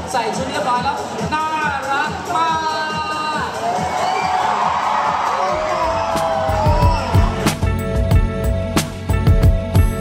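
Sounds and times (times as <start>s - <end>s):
music with heavy beat: 0.0s - 10.0s
crowd cheering and whooping: 3.5s - 7.7s.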